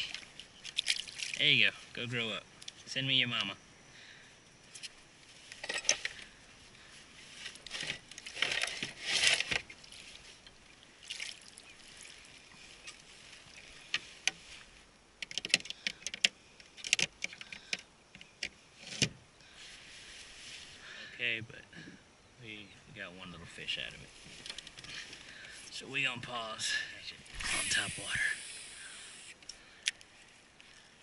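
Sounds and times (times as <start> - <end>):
water splashing and dripping: 0.0 - 1.4, 9.8 - 13.7
sharp clicks and knocks: 15.2 - 19.2.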